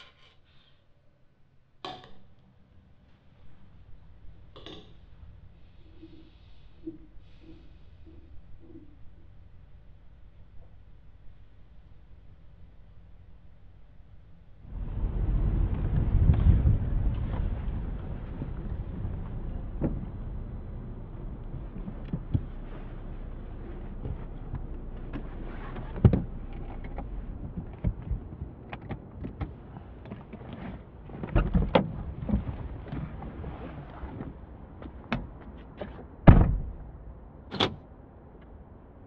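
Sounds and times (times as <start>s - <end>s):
car door opening knocks: 36.3s - 36.8s
car door slamming: 36.3s - 36.8s.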